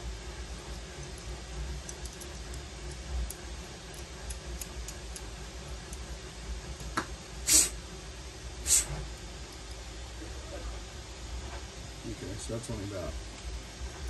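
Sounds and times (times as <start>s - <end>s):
low steady hum: 0.0s - 14.0s
small parts handling ticks: 0.7s - 6.1s.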